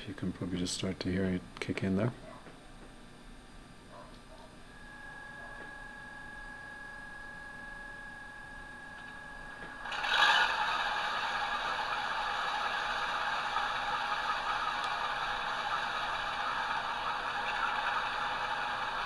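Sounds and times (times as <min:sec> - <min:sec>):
simulated diesel engine from small speaker: 0:09.6 - 0:19.0.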